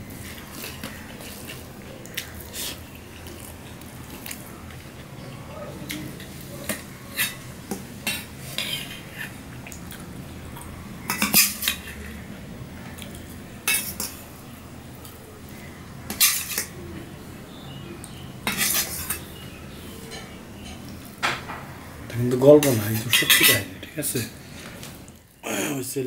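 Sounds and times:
spoon scraping steel dishes: 0:06.2 - 0:09.4, 0:11.1 - 0:12.1, 0:13.7 - 0:14.2, 0:16.1 - 0:16.7, 0:18.4 - 0:19.4, 0:22.6 - 0:23.7.

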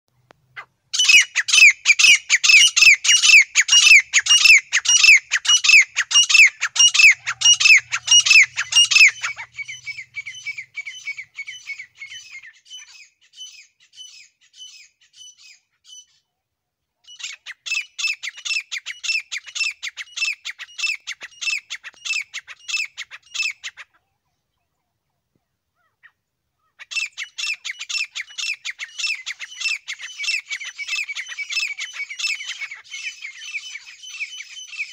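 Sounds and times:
bird giving harsh repeated calls: 0:00.5 - 0:15.5.

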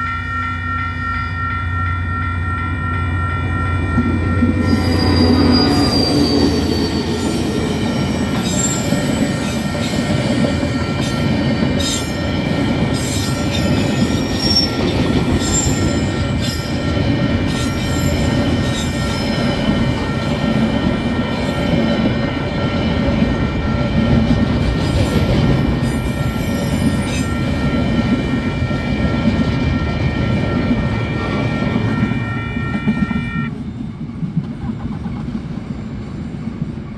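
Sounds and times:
crossing warning bells: 0:00.0 - 0:36.9
train wheels rumbling on rails: 0:01.6 - 0:36.9.

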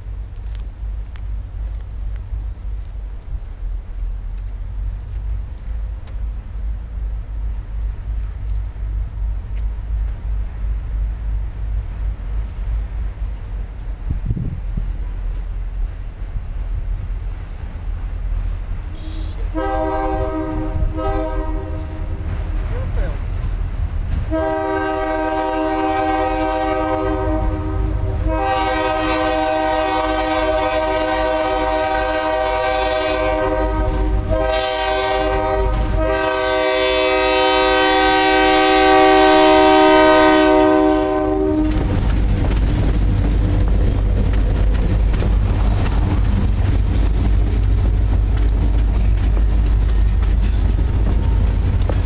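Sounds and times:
freight cars rumbling: 0:00.0 - 0:52.0
locomotive air horn: 0:18.9 - 0:22.1, 0:24.3 - 0:41.9
wheels clacking on rail joints: 0:41.4 - 0:52.0.

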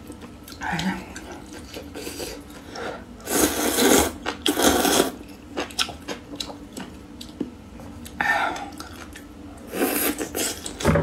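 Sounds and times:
person slurping noodles: 0:03.2 - 0:05.2.

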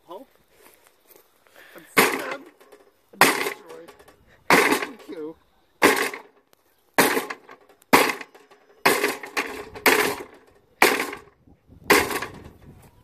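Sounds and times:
pole striking lawnmower: 0:02.0 - 0:05.2, 0:05.8 - 0:06.3, 0:07.0 - 0:11.3, 0:11.9 - 0:12.6.

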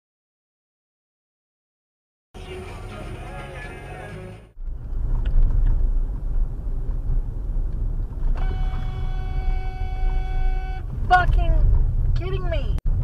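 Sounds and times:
car road and engine rumble: 0:02.4 - 0:13.0
car horn blast: 0:08.4 - 0:10.9.

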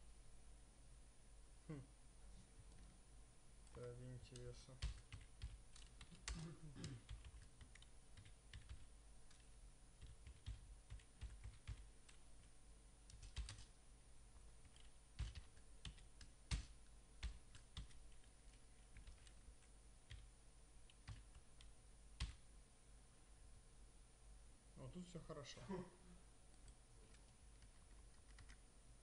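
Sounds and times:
computer keyboard typing: 0:04.3 - 0:13.7, 0:14.6 - 0:20.3, 0:20.9 - 0:22.4, 0:26.5 - 0:28.6.

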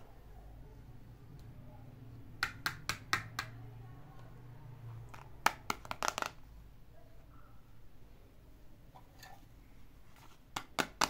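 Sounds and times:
plastic toys clicking and tapping: 0:05.1 - 0:06.4, 0:10.5 - 0:11.0.

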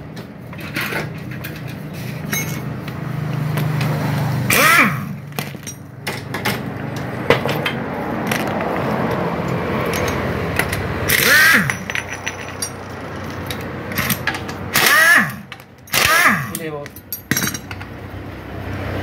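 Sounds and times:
metal parts clinking: 0:00.5 - 0:03.9, 0:04.5 - 0:06.7, 0:07.3 - 0:09.2, 0:09.8 - 0:17.9
impact wrench whine: 0:04.4 - 0:05.8, 0:09.9 - 0:12.8, 0:13.9 - 0:16.6.

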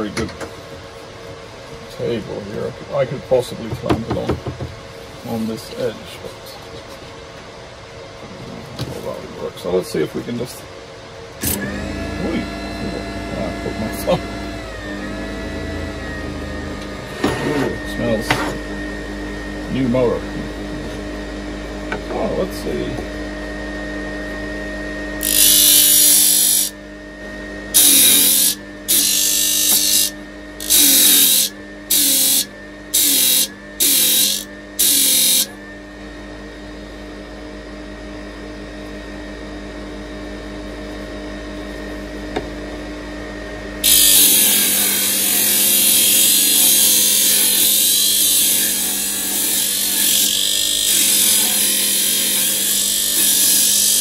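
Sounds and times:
disc sander motor humming: 0:11.4 - 0:37.8, 0:42.0 - 0:54.0.

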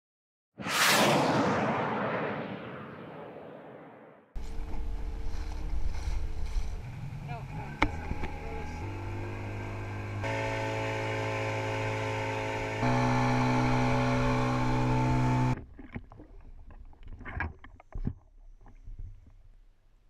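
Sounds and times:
outboard engine running: 0:04.4 - 0:16.1
faint water splashes: 0:15.6 - 0:19.3.

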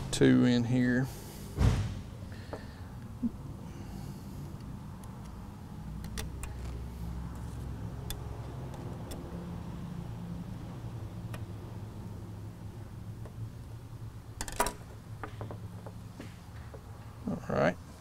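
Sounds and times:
steady low hum: 0:00.0 - 0:18.0
dull thump: 0:01.6 - 0:02.6.

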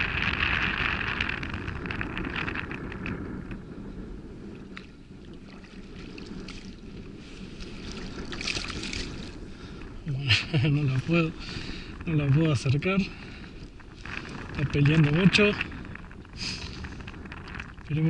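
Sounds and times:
wind rumbling on microphone: 0:00.0 - 0:18.0
fish splashing in water: 0:07.6 - 0:09.4.

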